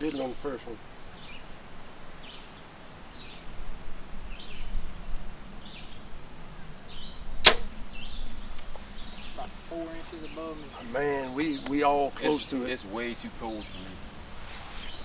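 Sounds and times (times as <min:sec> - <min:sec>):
bow shot snap: 0:07.4 - 0:07.8.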